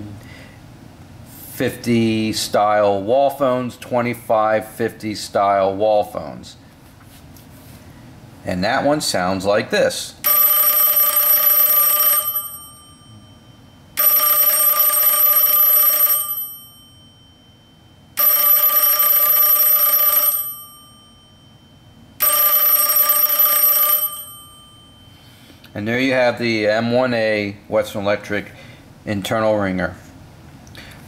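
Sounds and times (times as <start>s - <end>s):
telephone bell ringing: 10.2s - 25.6s.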